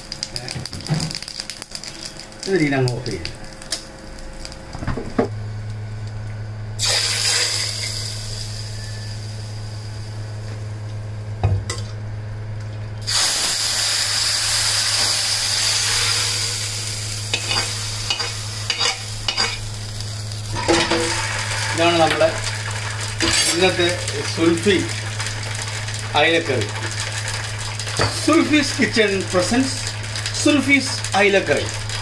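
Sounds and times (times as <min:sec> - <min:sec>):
seeds sizzling in hot oil: 0:00.0 - 0:04.8, 0:06.8 - 0:10.4, 0:13.0 - 0:32.0.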